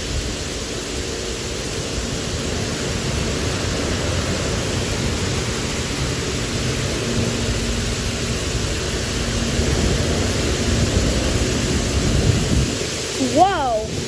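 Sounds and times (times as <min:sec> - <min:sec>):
high-pressure water spray hissing: 0:00.0 - 0:14.0.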